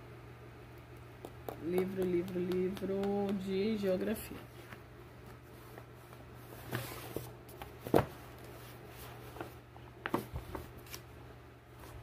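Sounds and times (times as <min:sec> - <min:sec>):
low steady hum: 0:00.0 - 0:12.0
books knocking and rustling: 0:06.6 - 0:08.4, 0:09.4 - 0:10.6.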